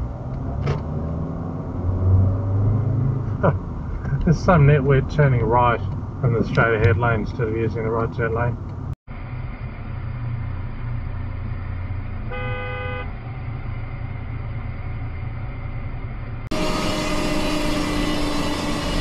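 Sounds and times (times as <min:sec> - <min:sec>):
road noise of vehicle driving: 0:00.0 - 0:19.0
car horn toot: 0:12.3 - 0:13.2.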